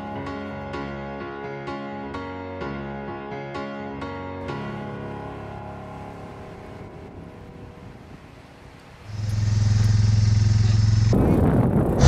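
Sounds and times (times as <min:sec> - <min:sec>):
rush of noise: 0:04.5 - 0:12.0
quad bike engine running: 0:09.2 - 0:12.0.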